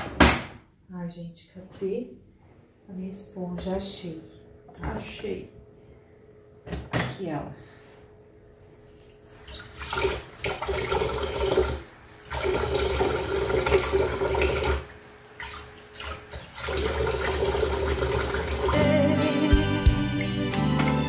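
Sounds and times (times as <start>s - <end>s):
dishes being washed: 9.3s - 18.8s.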